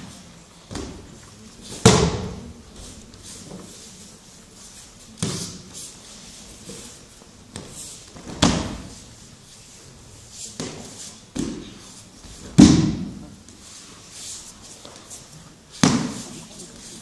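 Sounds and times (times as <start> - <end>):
bodies slapping onto mats: 7.5 - 9.0, 10.6 - 13.2, 15.7 - 16.3.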